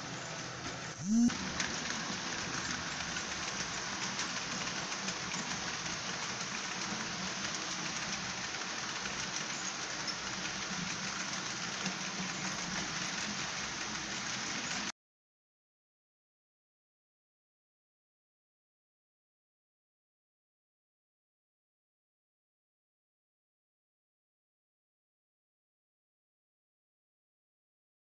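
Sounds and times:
model steam locomotive hiss from speaker: 0.0 - 14.9
model train wheels on track: 0.0 - 14.9.

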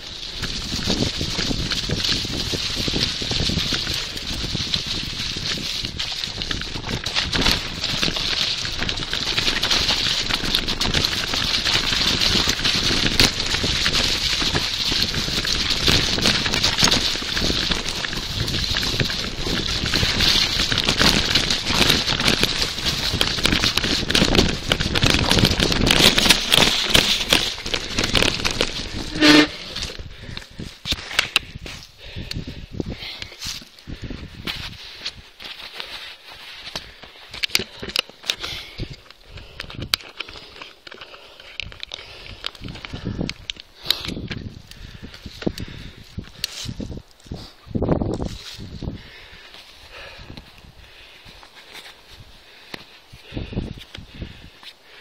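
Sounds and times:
bike rattling and knocking: 0.0 - 33.2
bicycle tyres on dirt trail: 0.0 - 55.0.

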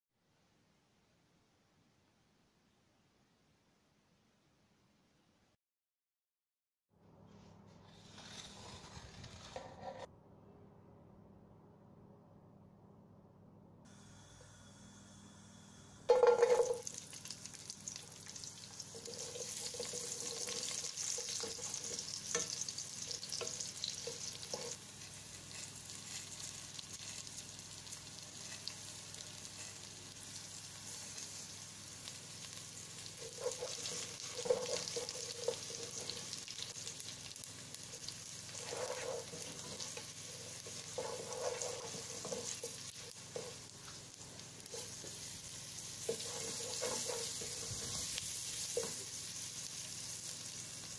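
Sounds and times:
wooden spatula scraping pot: 7.9 - 10.1, 18.8 - 24.8, 33.2 - 37.0, 37.9 - 43.7, 46.0 - 49.0
garlic sizzling in hot oil: 16.1 - 50.9.

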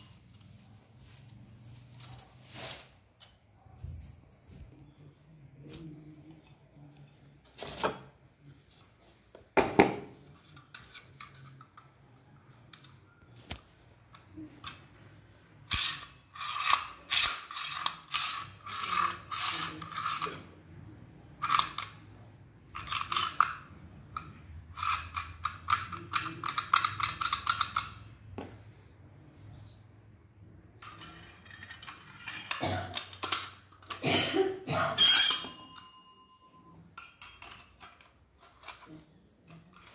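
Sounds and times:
metal clink: 34.9 - 38.8.

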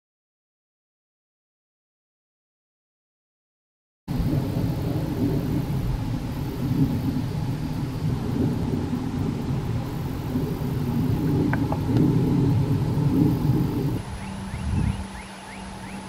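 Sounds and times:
wind rumbling on microphone: 4.1 - 16.0
bird chirp: 12.9 - 16.0.

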